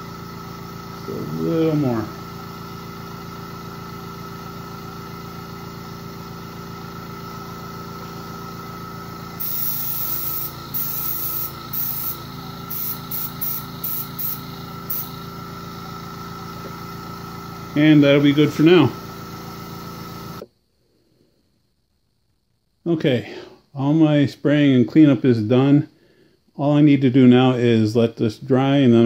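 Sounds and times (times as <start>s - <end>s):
steady machine hum: 0.0s - 20.5s
airbrush spraying hissing bursts: 9.3s - 15.5s.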